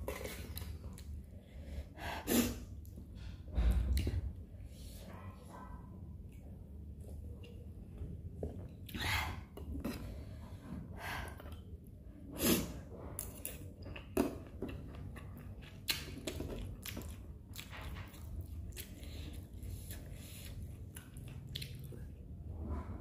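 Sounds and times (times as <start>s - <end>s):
person chewing corn: 13.2s - 22.2s.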